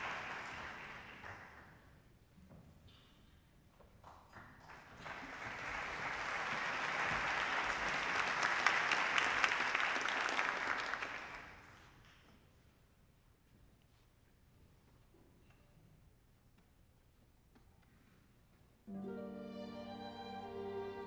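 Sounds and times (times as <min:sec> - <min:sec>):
audience applauding: 0:00.0 - 0:01.8, 0:04.3 - 0:11.8.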